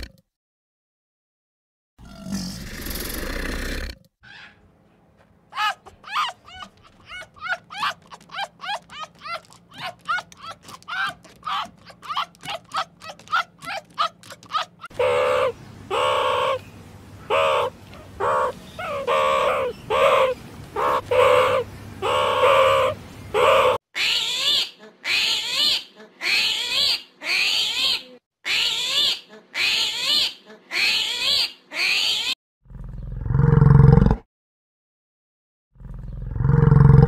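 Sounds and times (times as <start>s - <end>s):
tiger roaring: 35.8s - 37.0s.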